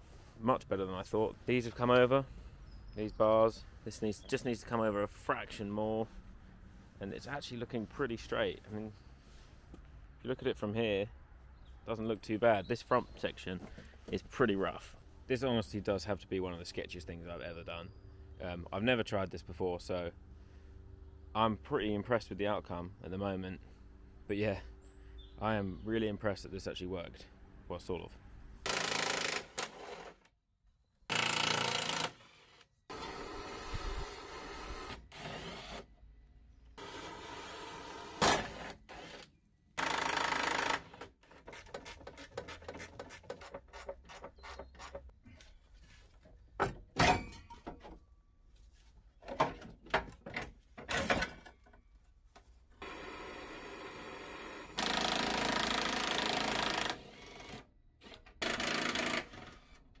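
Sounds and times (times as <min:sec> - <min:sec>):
impact wrench bursts: 0:28.6 - 0:29.9, 0:54.7 - 0:57.1, 0:58.4 - 0:59.4.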